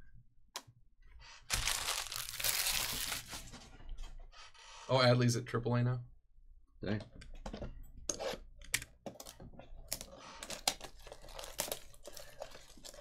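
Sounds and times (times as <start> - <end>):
plastic wrap crinkling and tearing: 1.5 - 3.5, 10.5 - 13.0.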